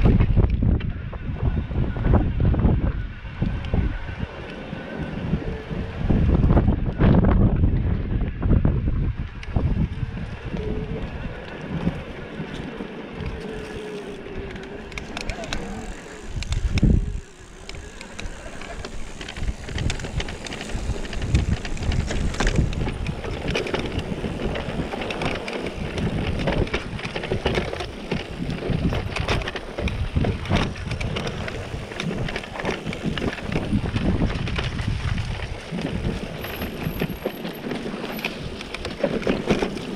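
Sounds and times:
bike rattling: 0:00.0 - 0:39.9
wind buffeting the microphone: 0:00.0 - 0:39.9.

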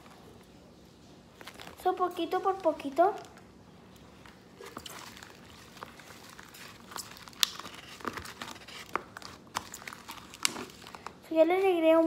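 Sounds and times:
hands kneading sticky slime: 0:01.2 - 0:12.0
slime pop: 0:06.5 - 0:11.0.

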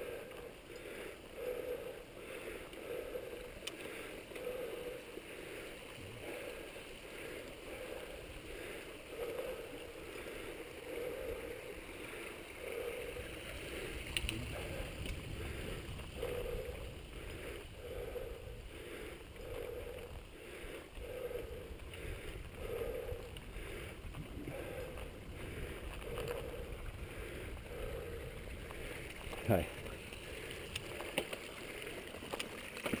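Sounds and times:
soft rhythmic pulse: 0:00.0 - 0:32.1
bike tyres rumbling on dirt: 0:09.2 - 0:33.0
wind on microphone: 0:13.1 - 0:20.4.

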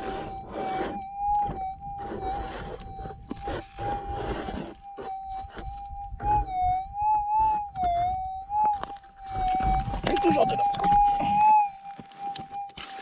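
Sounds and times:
coil scraping and ticking: 0:00.0 - 0:13.0
metal detector tone: 0:00.0 - 0:13.0
footsteps on stony ground: 0:07.4 - 0:13.0.

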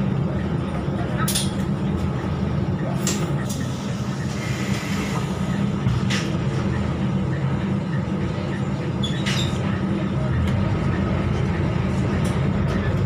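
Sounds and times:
bus diesel engine drone: 0:00.0 - 0:13.0.

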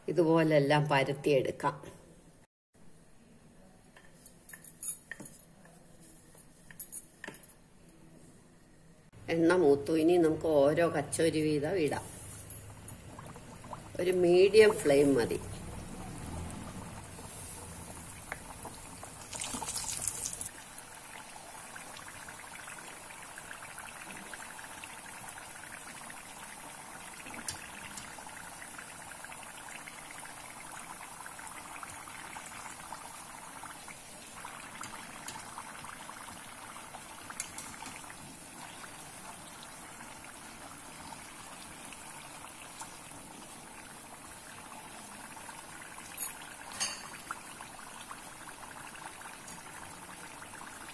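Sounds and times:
food sizzling in hot oil: 0:15.0 - 0:33.6.

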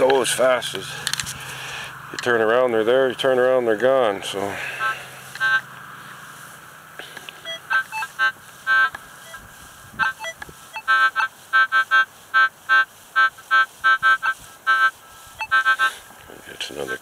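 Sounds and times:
metal detector high beeps: 0:04.8 - 0:05.7, 0:07.4 - 0:16.0
metal detector low beeps: 0:04.8 - 0:05.7, 0:07.4 - 0:16.0.

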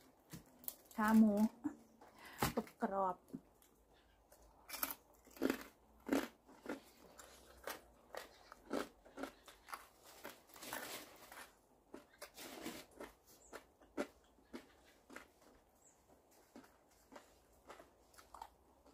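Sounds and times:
person chewing crunchy food: 0:03.5 - 0:18.9.

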